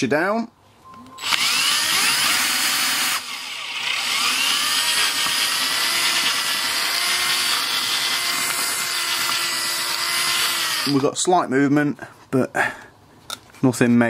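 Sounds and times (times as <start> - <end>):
drill bit slipping on screw head: 1.2 - 11.1
drill motor whining: 1.2 - 11.2.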